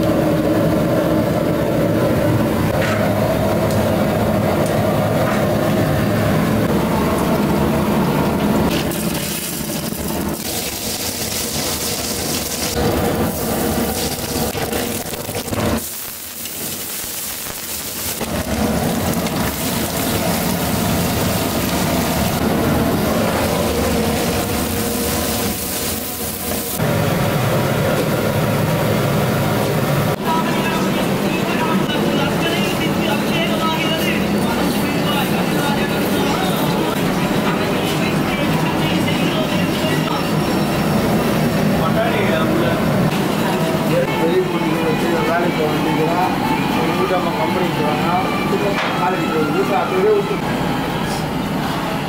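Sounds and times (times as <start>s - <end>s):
gas burner rushing: 0.0s - 52.0s
hot oil sizzling: 8.6s - 29.8s.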